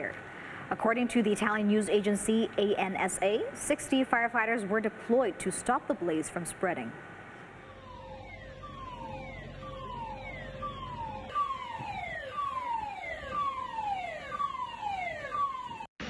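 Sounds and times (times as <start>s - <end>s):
steady tone: 7.4s - 15.9s
siren wailing: 7.5s - 15.9s.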